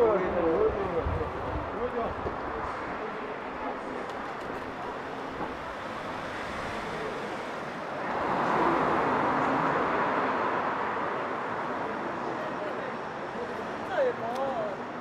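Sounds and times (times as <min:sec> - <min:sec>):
street noise: 0:00.0 - 0:15.0
vehicle passing close by: 0:04.4 - 0:11.5.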